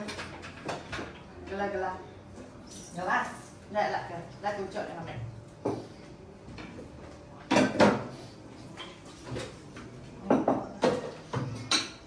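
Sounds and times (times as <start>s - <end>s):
dishes and utensils clattering: 0.0s - 1.3s, 7.5s - 12.0s.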